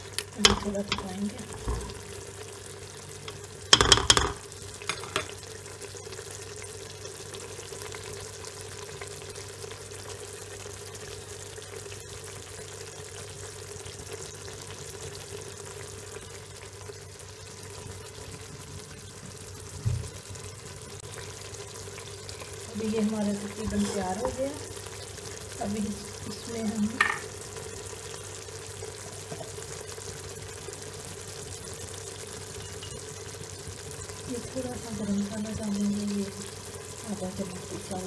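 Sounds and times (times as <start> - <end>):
faint steady hum: 0.0 - 38.0
gravy sizzling in a pot: 0.0 - 38.0
metal spoon clattering on pot: 3.8 - 5.3
low thump: 19.8 - 20.2.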